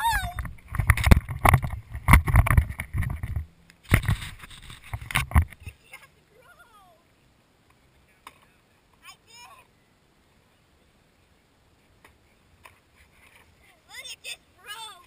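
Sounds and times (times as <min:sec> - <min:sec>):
crash knocks and scraping: 0:00.4 - 0:05.6.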